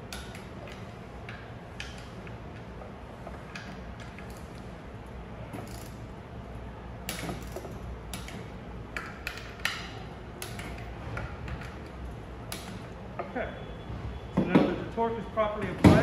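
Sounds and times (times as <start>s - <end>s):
torque wrench ratchet clicks: 5.5s - 6.1s, 7.1s - 10.9s.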